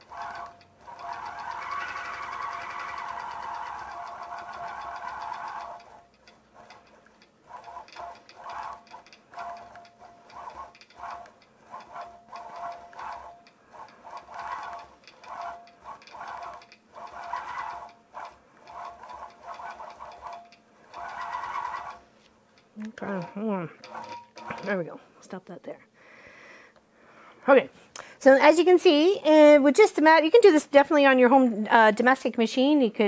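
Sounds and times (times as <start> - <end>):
quilting machine stitching whine: 0.0 - 22.1, 23.0 - 24.8.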